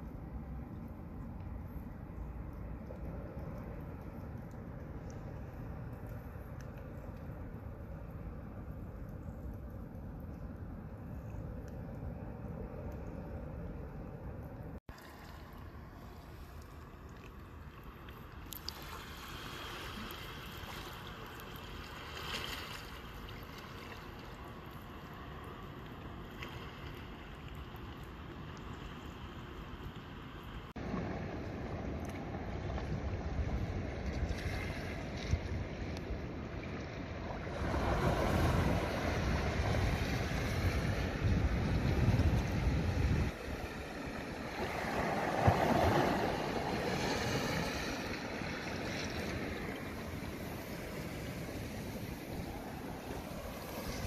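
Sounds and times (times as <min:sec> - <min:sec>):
shallow seawater washing: 0:14.8 - 0:54.0
wind on microphone: 0:37.1 - 0:54.0.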